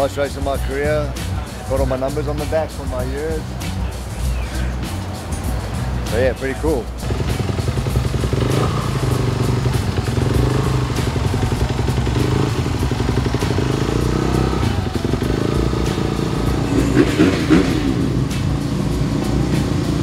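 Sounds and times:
motorcycle engine running: 5.4s - 20.0s.

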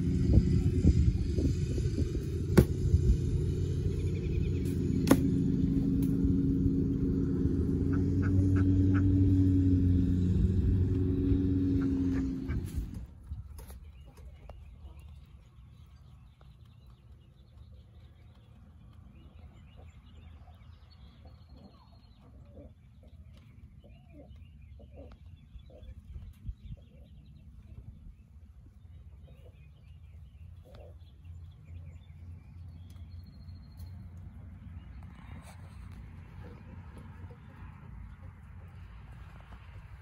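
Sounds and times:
low steady rumble: 0.0s - 40.0s
small birds chirping: 0.0s - 40.0s
chickens clucking: 3.6s - 9.6s, 10.3s - 15.4s, 21.1s - 27.8s, 34.9s - 39.5s.

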